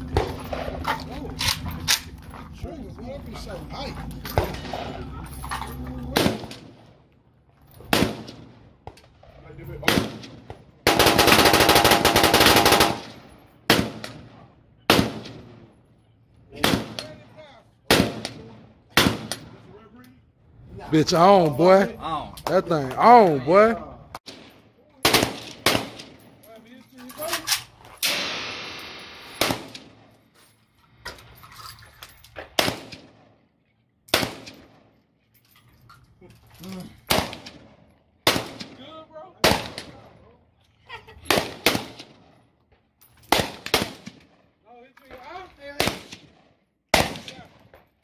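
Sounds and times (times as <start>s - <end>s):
rifle shots echoing: 6.0s - 6.9s, 7.9s - 8.7s, 9.8s - 15.7s, 16.6s - 17.2s, 17.9s - 19.6s, 24.2s - 26.3s, 28.0s - 30.2s, 32.6s - 33.4s, 34.1s - 34.9s, 37.1s - 38.8s, 39.4s - 40.1s, 41.3s - 42.3s, 43.3s - 44.4s, 45.8s - 47.6s
rifle gunfire with echo: 9.8s - 15.6s, 28.0s - 30.1s, 43.3s - 44.2s, 45.8s - 47.4s.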